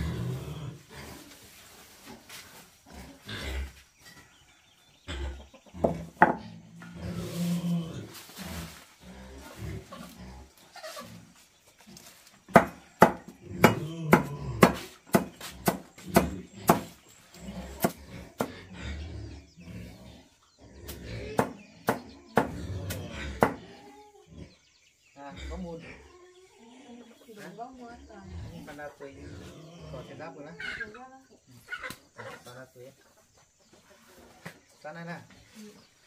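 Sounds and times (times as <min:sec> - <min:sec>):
knife chopping on wooden board: 0:12.5 - 0:17.0, 0:17.8 - 0:18.5, 0:21.4 - 0:22.6, 0:23.4 - 0:23.6.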